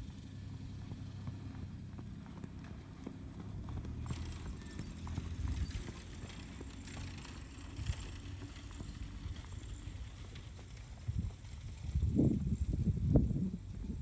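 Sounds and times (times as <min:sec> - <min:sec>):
horse hoofbeats on sand: 0:00.0 - 0:14.0.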